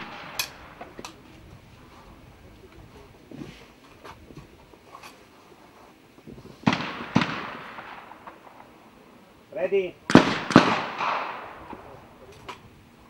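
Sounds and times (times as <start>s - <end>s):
shotgun shots with echo: 0.0s - 1.0s, 6.6s - 8.8s, 10.1s - 12.1s.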